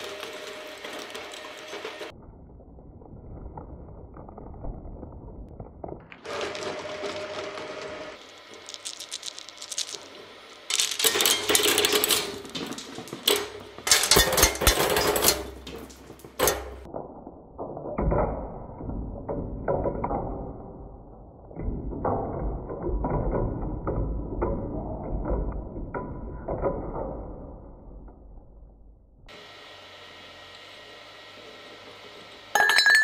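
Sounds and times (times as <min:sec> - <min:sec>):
plastic pieces clattering: 0:00.0 - 0:02.1, 0:04.5 - 0:16.9
shredder crunching and cracking: 0:00.0 - 0:02.1, 0:06.2 - 0:16.9.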